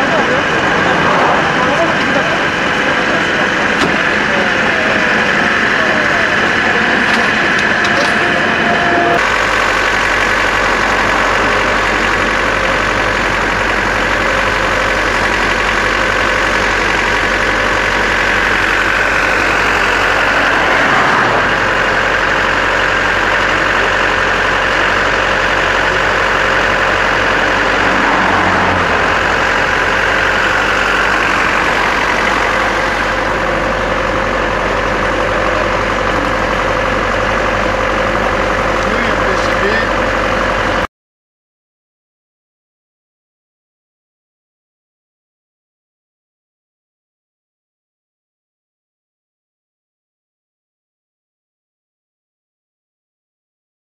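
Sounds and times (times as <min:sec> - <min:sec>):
diesel engine idling: 0:00.0 - 0:40.9.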